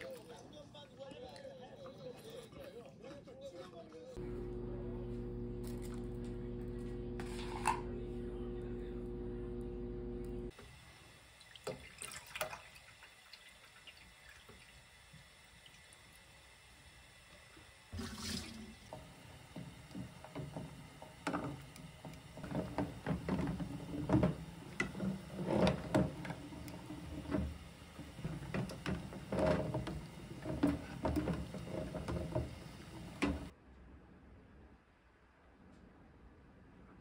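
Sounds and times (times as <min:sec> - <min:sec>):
water boiling: 0:04.2 - 0:33.5.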